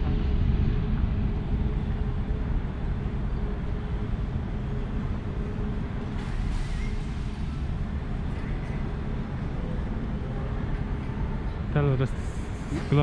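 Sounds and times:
airport terminal hall rumble: 0.0s - 13.0s
faint constant hum: 0.0s - 13.0s.

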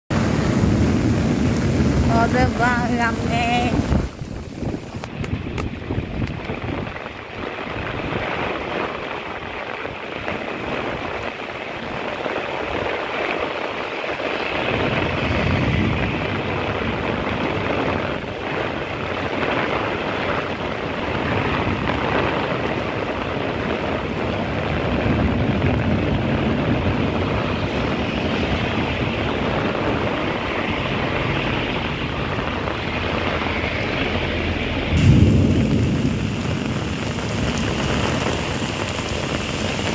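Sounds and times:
heavy rain pouring: 0.1s - 39.9s
wind gusting through trees: 0.1s - 39.9s
low rumble: 28.8s - 39.9s.

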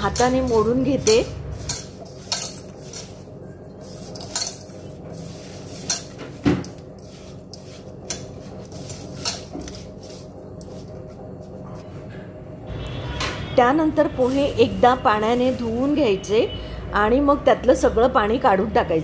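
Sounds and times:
hands rubbing food: 1.6s - 11.6s.

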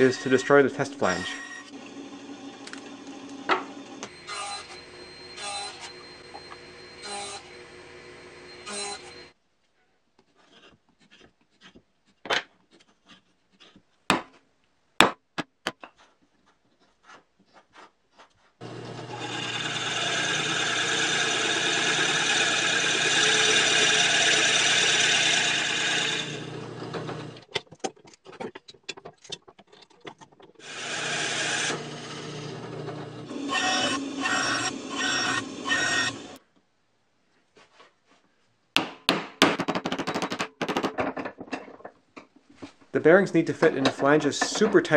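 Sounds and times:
drill press cutting plywood: 0.0s - 9.3s, 18.6s - 27.4s, 30.6s - 36.4s.

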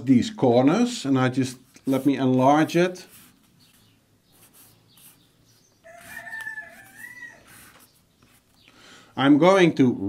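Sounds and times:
rooster crowing: 5.8s - 7.7s.

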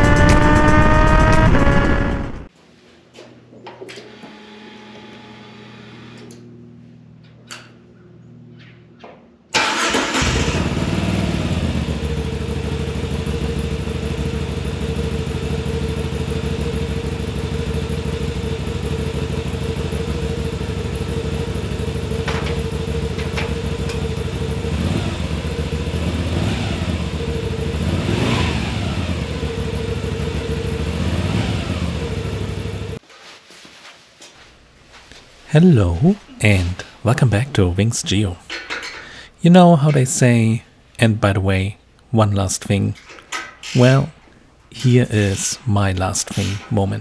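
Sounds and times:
motorcycle engine revving: 0.0s - 2.5s, 9.6s - 33.0s
motorcycle engine starting and idling: 0.0s - 2.5s, 9.5s - 33.0s, 46.3s - 47.0s.

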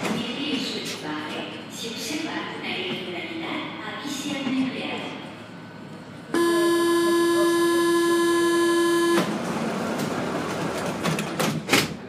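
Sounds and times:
train door warning buzzer: 6.3s - 9.4s.

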